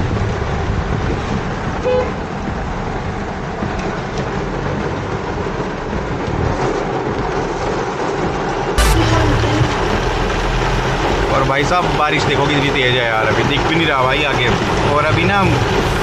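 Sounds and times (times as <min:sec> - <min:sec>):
heavy rain drumming on car: 0:00.0 - 0:16.0
tyres hissing on wet road: 0:00.1 - 0:16.0
short beep: 0:08.8 - 0:10.3.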